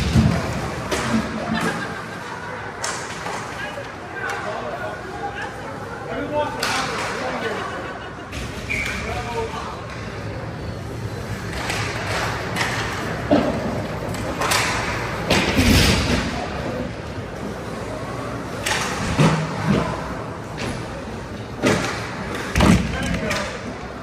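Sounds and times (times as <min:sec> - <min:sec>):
puck and players hitting boards: 0:00.0 - 0:01.8, 0:06.6 - 0:07.4, 0:11.5 - 0:16.4, 0:18.5 - 0:20.9, 0:21.5 - 0:23.8.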